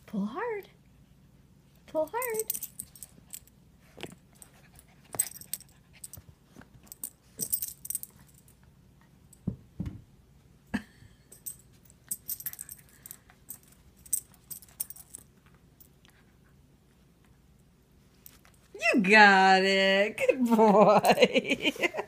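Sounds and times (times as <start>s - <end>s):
soft thumps: 9.4s - 10.1s.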